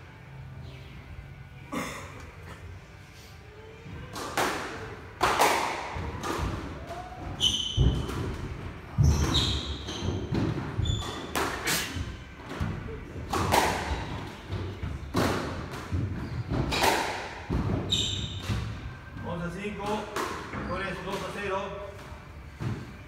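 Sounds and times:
squash ball thuds: 5.2s - 19.2s
shoes squeaking on wooden floor: 8.9s - 12.3s, 17.8s - 18.5s.

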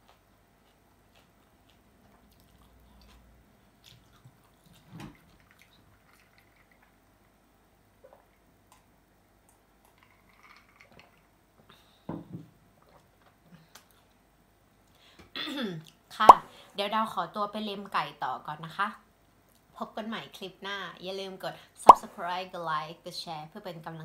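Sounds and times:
chewing and mouth smacks: 0.0s - 7.4s, 8.0s - 11.3s.

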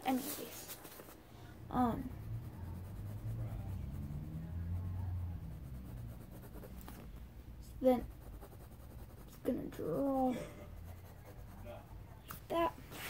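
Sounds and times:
pencil scratching on paper: 0.1s - 1.2s, 1.8s - 12.2s
low hum: 1.2s - 9.2s.

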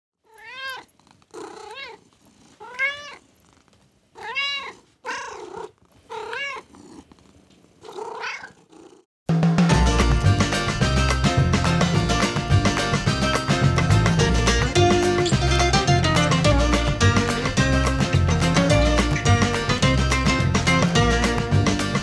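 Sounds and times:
kitten meowing: 0.3s - 2.0s, 2.6s - 3.2s, 4.2s - 6.7s, 7.9s - 8.6s
latin-style guitar music: 9.6s - 22.0s.

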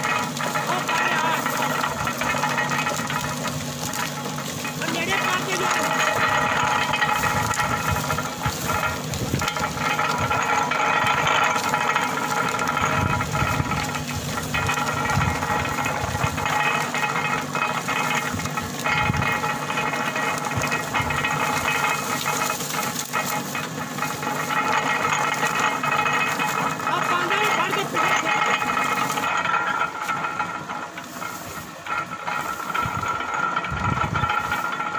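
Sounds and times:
cane cracking clicks: 0.0s - 34.9s
sugarcane crusher running: 0.0s - 34.9s.

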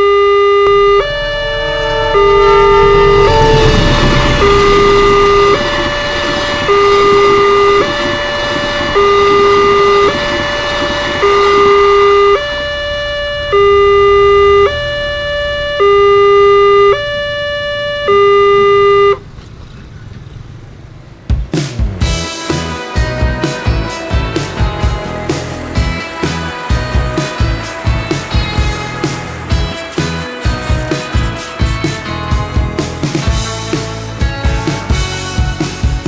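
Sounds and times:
two-tone crossing alarm: 0.0s - 19.5s, 22.4s - 36.0s
train passing: 0.7s - 13.7s, 19.2s - 32.4s.

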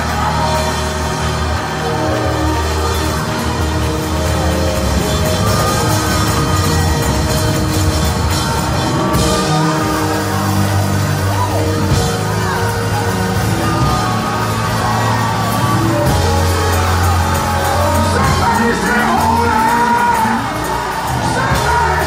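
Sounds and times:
bass line: 0.0s - 22.0s
church band playing gospel music: 0.0s - 22.0s
congregation shouting and singing: 0.0s - 22.0s.

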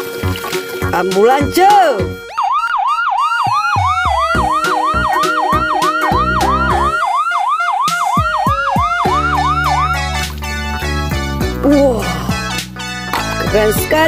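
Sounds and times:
ambulance siren yelping: 0.0s - 11.2s.

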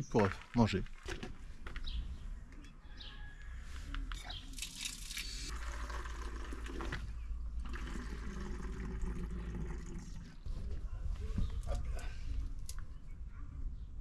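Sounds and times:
water filling a bottle: 4.7s - 10.4s.

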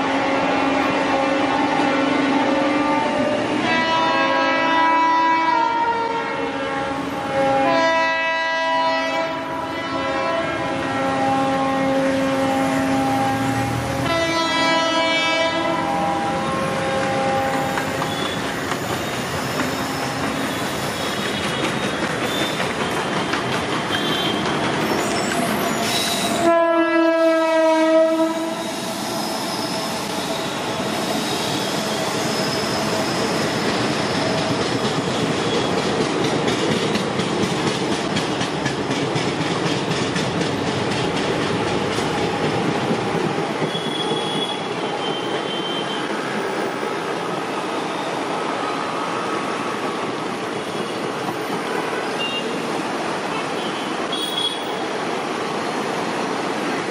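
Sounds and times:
train horn blast: 0.2s - 18.6s, 23.9s - 24.6s, 25.5s - 28.8s, 43.7s - 46.1s, 53.3s - 54.8s
train wheels rumbling on rails: 0.4s - 56.9s.

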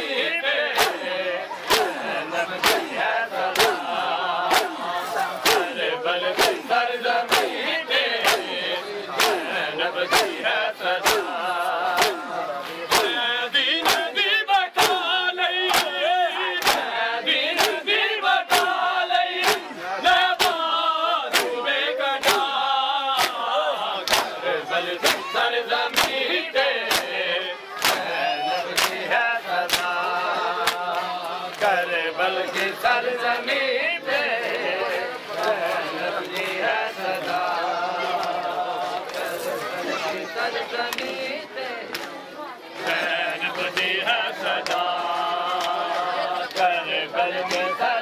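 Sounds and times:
crowd of men chanting: 0.0s - 48.0s
hands slapping bare chests: 0.8s - 1.0s, 1.7s - 2.0s, 2.6s - 2.9s, 3.5s - 4.8s, 5.4s - 5.7s, 6.4s - 6.6s, 7.3s - 7.6s, 8.2s - 8.5s, 9.2s - 9.5s, 11.0s - 13.2s, 13.8s - 14.1s, 15.7s - 16.0s, 16.6s - 16.9s, 17.6s - 17.8s, 19.4s - 19.7s, 20.4s - 20.6s, 21.3s - 21.6s, 22.2s - 22.5s, 23.1s - 23.4s, 24.0s - 24.4s, 25.0s - 25.3s, 25.9s - 26.2s, 26.8s - 27.2s, 27.8s - 28.1s, 28.7s - 29.0s, 29.6s - 31.7s.

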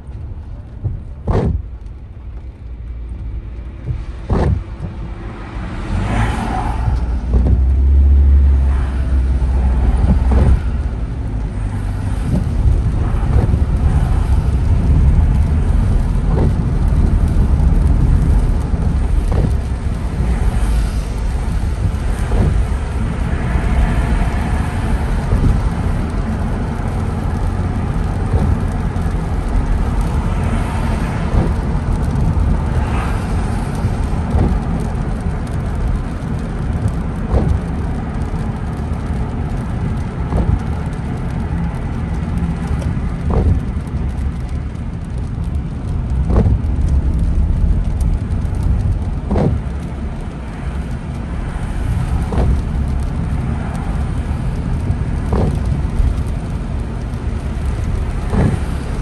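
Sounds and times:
car engine: 0.0s - 59.0s
tyres on wet road: 0.0s - 59.0s.

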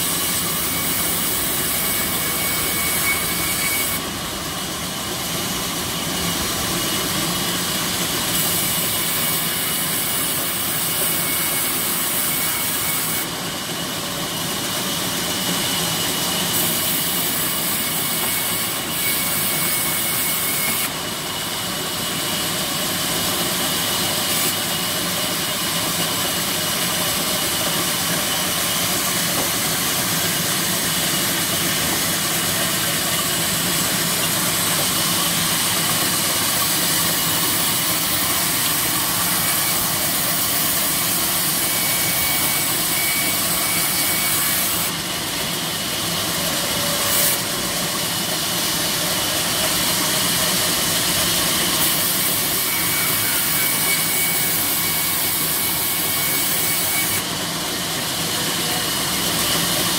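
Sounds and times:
saw ripping wood: 23.8s - 45.1s.

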